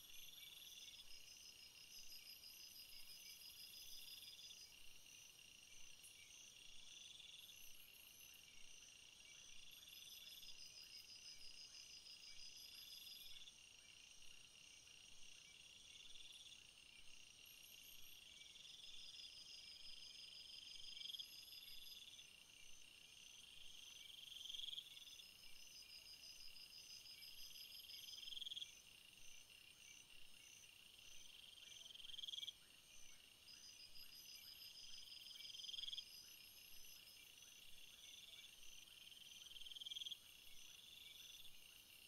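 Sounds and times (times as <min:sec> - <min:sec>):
crickets chirping: 0:00.0 - 0:42.0.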